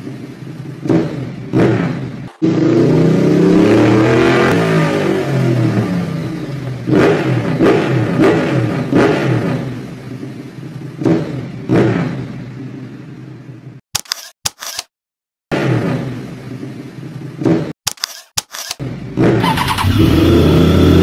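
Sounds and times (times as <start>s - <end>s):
motorcycle engines revving: 0.1s - 13.0s, 19.0s - 21.0s.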